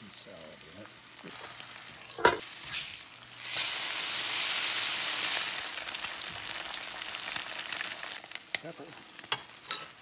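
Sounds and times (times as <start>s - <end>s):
food sizzling in frying pan: 0.0s - 10.0s.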